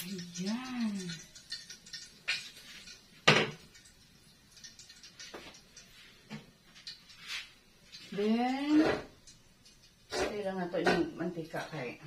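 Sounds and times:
cookware clicks and taps: 0.0 - 3.8, 10.8 - 11.2.

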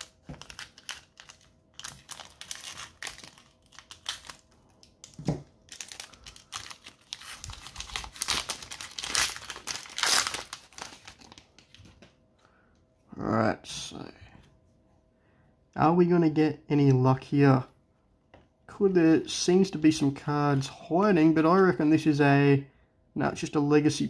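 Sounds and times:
foil wrapper crinkling: 0.0 - 11.9.

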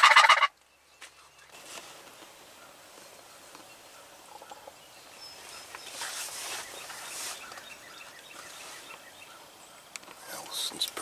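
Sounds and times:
brief rustle: 1.0 - 2.3, 5.6 - 7.7.

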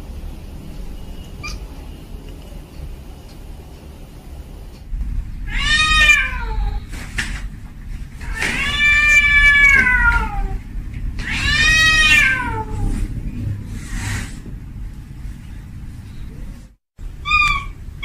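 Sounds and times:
low rumbling background noise: 0.0 - 18.0
cat meowing: 1.4 - 1.7, 5.5 - 6.9, 8.2 - 10.6, 11.2 - 13.0, 17.2 - 17.9.

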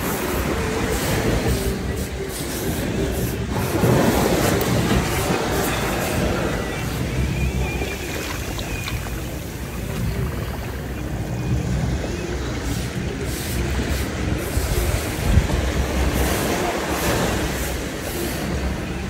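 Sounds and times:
surf washing up beach: 0.0 - 19.0
wind rumble on microphone: 0.0 - 19.0.

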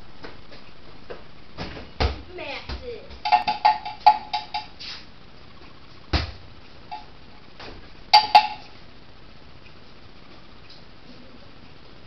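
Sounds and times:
ball bouncing: 1.1 - 4.7, 6.1 - 8.8.

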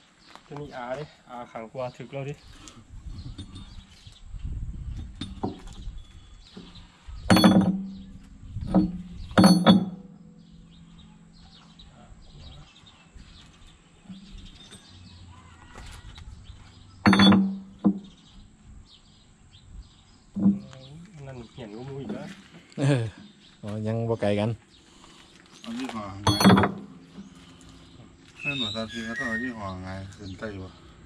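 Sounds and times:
metal-on-metal clanks: 3.3 - 3.9, 5.0 - 12.0, 14.0 - 15.1, 17.0 - 18.4, 26.2 - 27.4.

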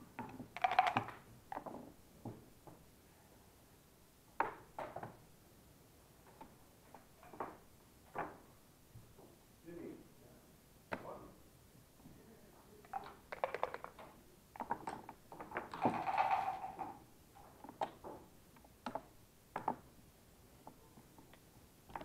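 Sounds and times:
dice rattled in a cup: 0.5 - 1.2, 12.9 - 14.1, 15.4 - 17.0
dice thrown onto board: 12.9 - 14.1, 15.4 - 17.0.

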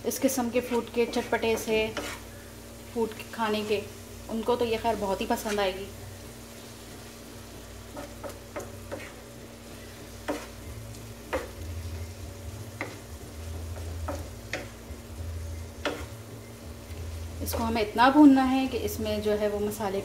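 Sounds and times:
light sizzle: 0.0 - 20.0
wooden spatula scraping a pan: 0.4 - 16.2.

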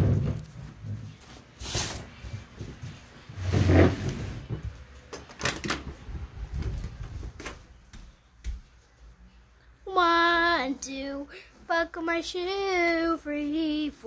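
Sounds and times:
barefoot footsteps knocks and clicks: 4.4 - 8.9.

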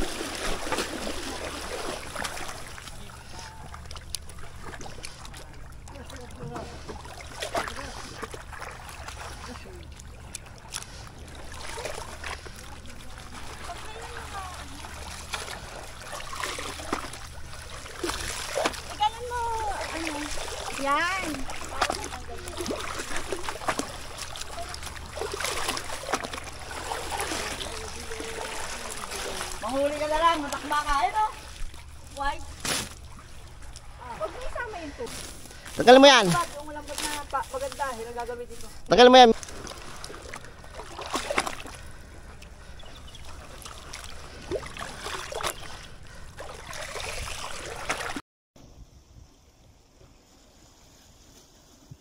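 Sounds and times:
shallow water splashing: 0.0 - 48.2.

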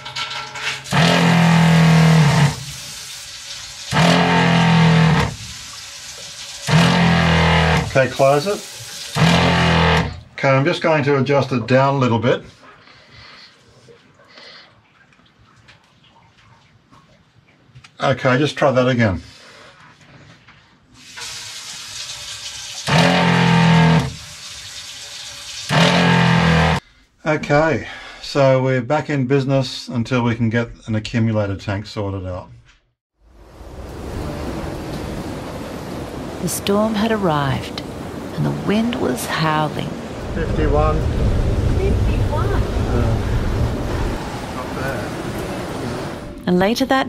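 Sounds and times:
water pressure pump running: 0.4 - 10.3, 21.1 - 26.8.

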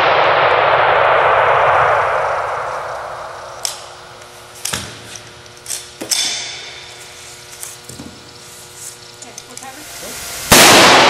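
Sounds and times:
rifle shots cracking: 10.5 - 11.0.

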